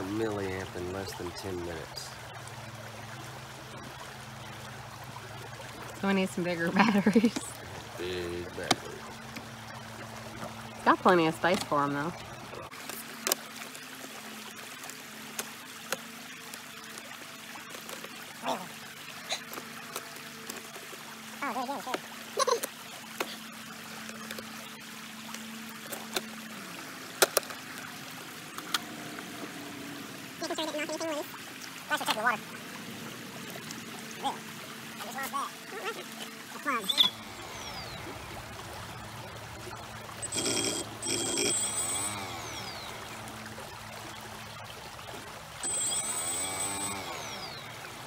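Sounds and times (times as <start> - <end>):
water trickling over rocks: 0.0 - 48.0
electric motor whine: 36.6 - 43.9, 45.6 - 48.0.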